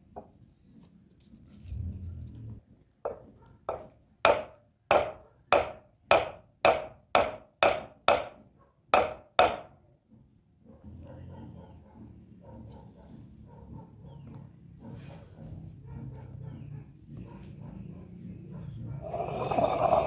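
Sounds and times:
hammer knocking wooden handle: 3.1s - 9.7s.

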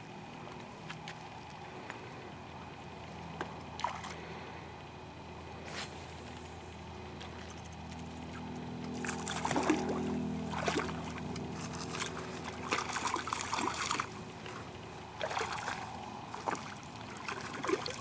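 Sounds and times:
fish splashing in water: 3.7s - 4.4s, 7.2s - 18.0s.

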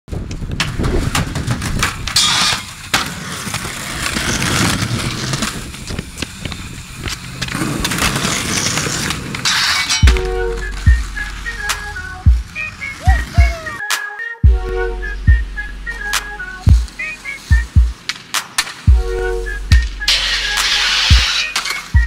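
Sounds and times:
skateboard wheels rolling on concrete: 0.1s - 14.3s, 15.0s - 22.0s
skateboard clacks: 0.2s - 14.0s, 16.0s - 18.9s, 19.7s - 22.0s
skateboard scraping: 0.3s - 14.3s, 15.9s - 22.0s
music: 10.0s - 22.0s.

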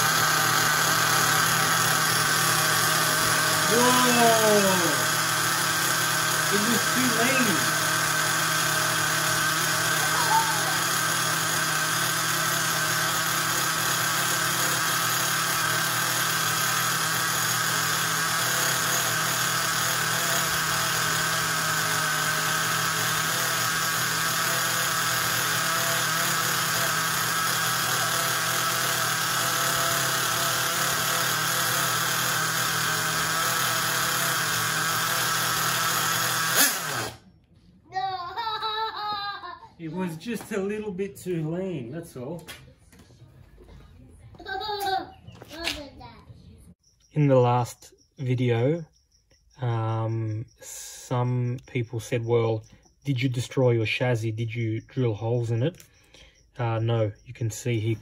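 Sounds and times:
nitro engine running at high revs: 0.0s - 37.3s.

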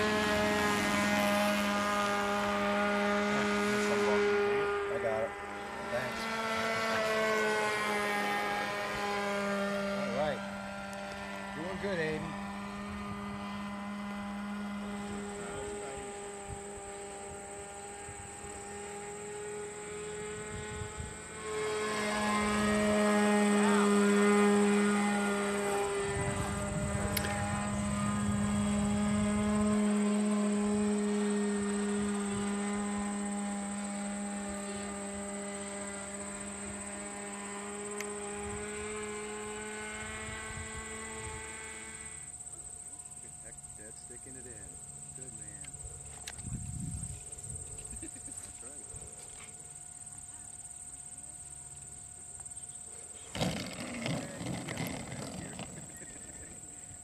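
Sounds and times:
model airplane motor droning: 0.0s - 57.0s.

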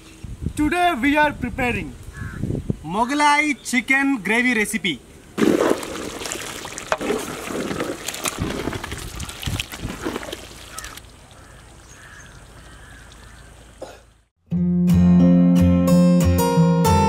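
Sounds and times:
gravy bubbling: 5.4s - 11.8s
thick gravy squelching and splashing: 5.4s - 13.7s.

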